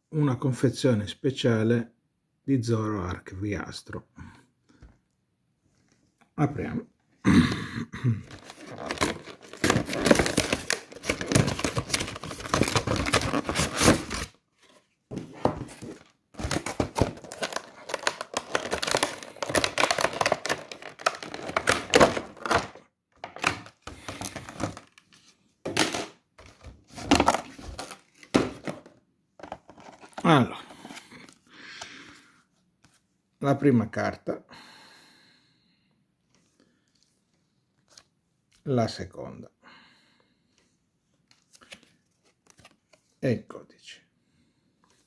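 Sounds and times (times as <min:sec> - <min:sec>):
plastic and cardboard crinkling: 0:08.3 - 0:31.4.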